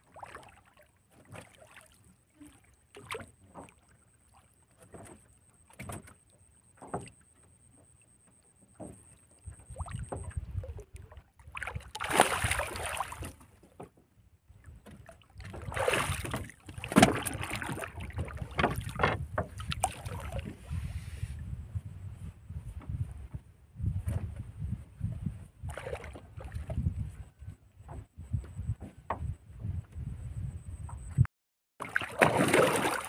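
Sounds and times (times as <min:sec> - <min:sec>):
water splashing against boat: 0:00.0 - 0:30.2, 0:30.8 - 0:33.0.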